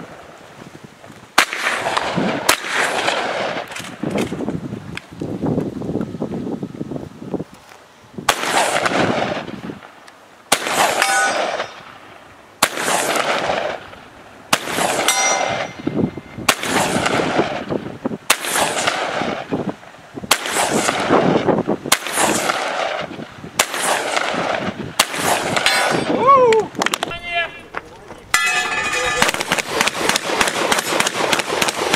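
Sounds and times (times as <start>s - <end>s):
shotgun shots with echo: 1.4s - 4.0s, 8.3s - 9.5s, 10.5s - 12.0s, 12.6s - 13.8s, 14.5s - 17.7s, 18.3s - 19.5s, 20.3s - 26.1s, 28.3s - 31.9s
faint metallic ring of target: 11.0s - 11.8s, 15.1s - 15.9s, 28.3s - 29.5s.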